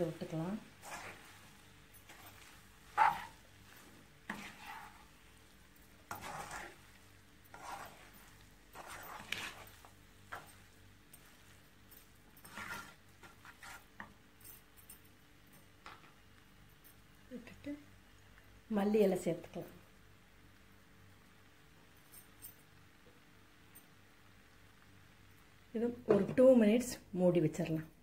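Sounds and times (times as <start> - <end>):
spatula scraping frying pan: 0.6 - 11.6, 12.4 - 14.1.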